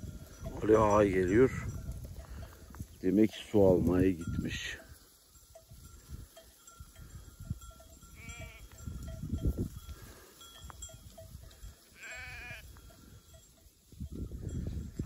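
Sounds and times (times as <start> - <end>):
flock bells clinking: 0.0 - 15.0
sheep bleating: 8.1 - 8.8, 11.9 - 12.8.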